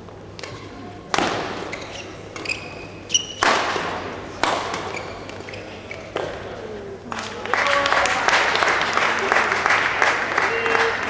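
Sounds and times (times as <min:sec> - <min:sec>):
racket hitting shuttlecock: 0:00.3 - 0:05.4
shoes squeaking on court: 0:01.4 - 0:03.5, 0:04.6 - 0:06.2.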